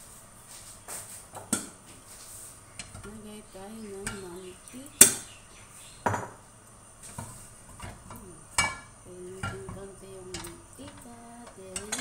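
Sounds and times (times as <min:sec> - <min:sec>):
kitchen utensils clinking: 0:03.8 - 0:05.3, 0:07.0 - 0:12.0.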